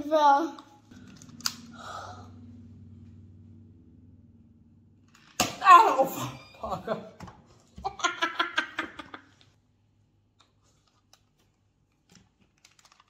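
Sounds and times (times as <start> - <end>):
child giggling: 7.8 - 9.3.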